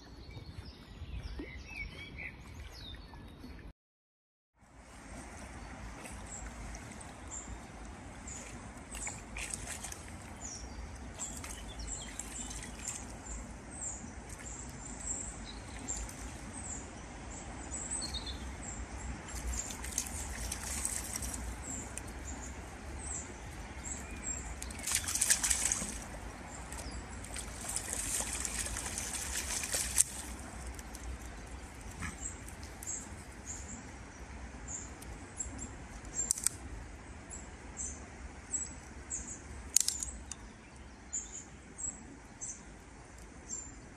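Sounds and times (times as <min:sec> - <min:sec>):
small birds chirping: 0:06.0 - 0:36.6
dog splashing in water: 0:08.3 - 0:10.4, 0:19.3 - 0:21.6, 0:24.6 - 0:31.0.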